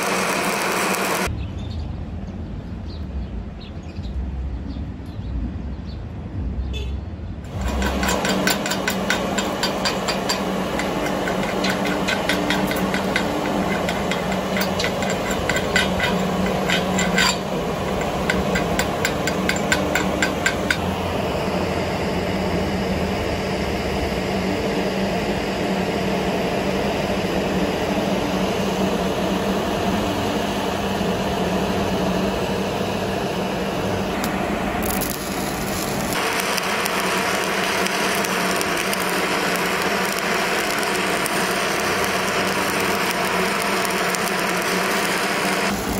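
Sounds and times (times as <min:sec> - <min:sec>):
steady hiss: 0:00.0 - 0:01.3, 0:26.8 - 0:45.9
steady low hum: 0:07.3 - 0:45.9
scraping strokes on steel plate: 0:07.5 - 0:20.8.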